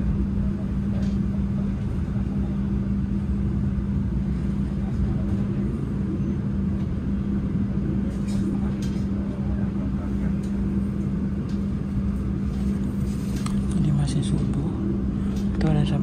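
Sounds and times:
constant low hum: 0:00.0 - 0:16.0
train rumbling on track: 0:00.0 - 0:16.0.

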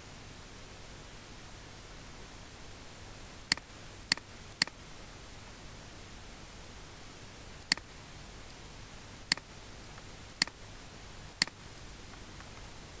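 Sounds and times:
faint steady hiss: 0:00.0 - 0:13.0
mouse button clicks: 0:07.6 - 0:07.9.

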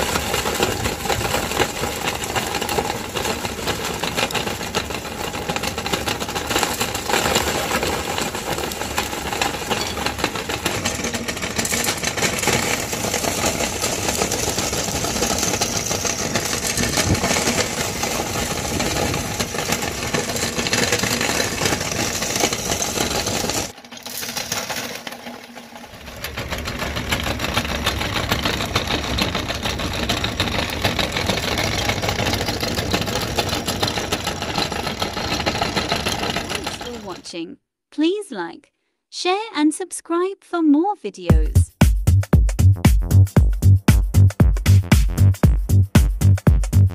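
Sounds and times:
meat grinder whirring rattle: 0:00.0 - 0:37.1.

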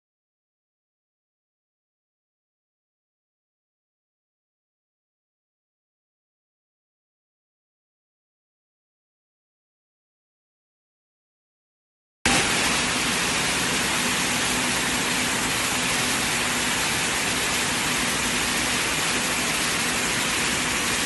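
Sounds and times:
air-jet looms running: 0:12.3 - 0:21.0.

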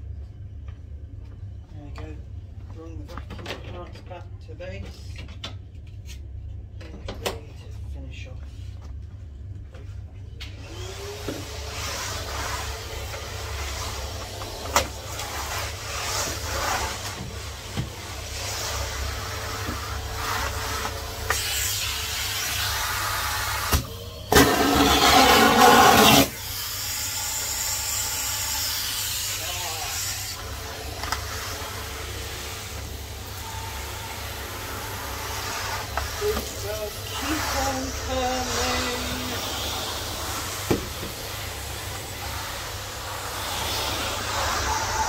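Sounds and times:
vacuum cleaner running: 0:10.4 - 0:45.0.

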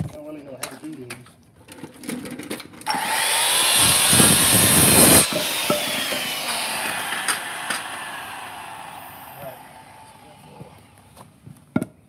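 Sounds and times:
circular saw cutting wood: 0:02.9 - 0:11.2.

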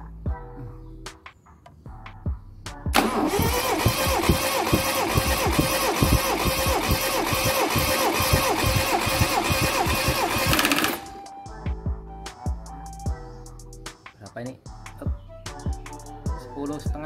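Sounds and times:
engine cranking on starter motor: 0:03.0 - 0:11.3.

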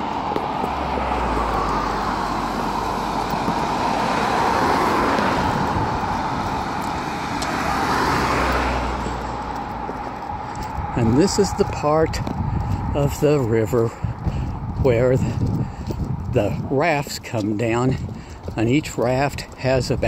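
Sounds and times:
cars passing: 0:00.0 - 0:20.0.

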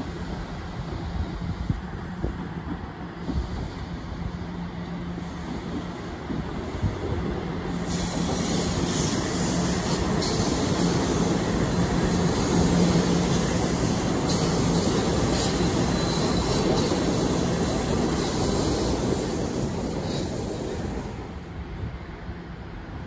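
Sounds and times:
subway train wheels rumbling: 0:00.0 - 0:23.0
high-pitched wheel squeal: 0:07.9 - 0:11.3, 0:12.2 - 0:17.1.

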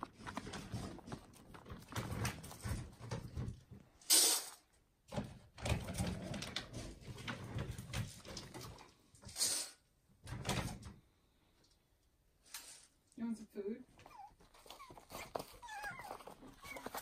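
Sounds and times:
short scraping hisses: 0:04.0 - 0:04.6, 0:09.3 - 0:09.9.

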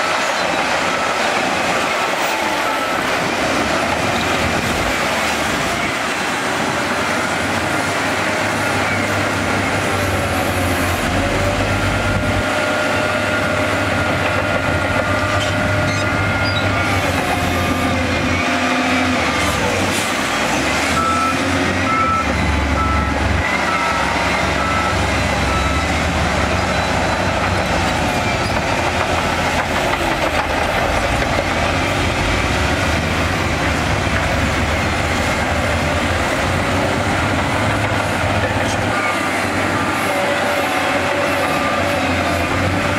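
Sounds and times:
heavy diesel engines under load: 0:00.0 - 0:42.9
reversing alarm beeping: 0:02.4 - 0:03.3, 0:14.9 - 0:18.7, 0:20.9 - 0:28.6.

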